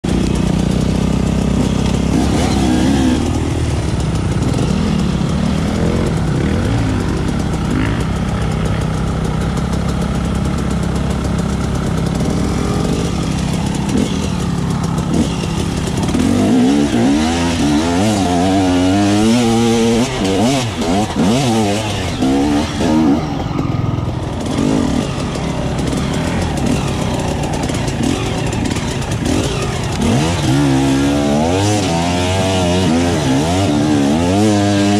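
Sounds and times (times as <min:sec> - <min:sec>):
dirt bike engine revving: 0:00.0 - 0:34.9.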